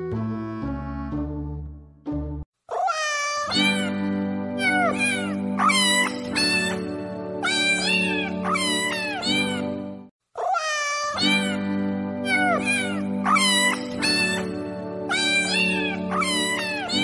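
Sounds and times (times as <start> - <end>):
music made from cat meows: 2.7 - 17.0.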